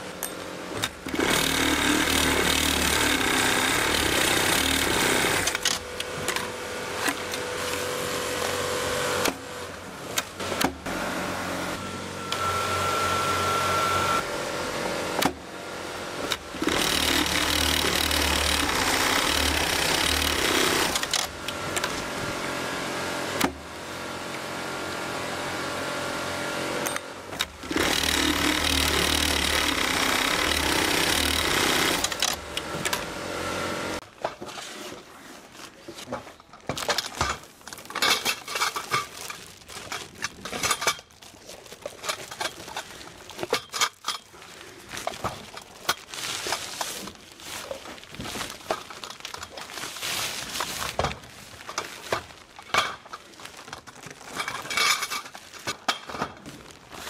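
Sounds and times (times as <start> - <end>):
industrial sewing machine running: 1.0 - 5.8, 16.4 - 21.8, 27.5 - 34.0
plastic bags rustling: 34.1 - 57.0.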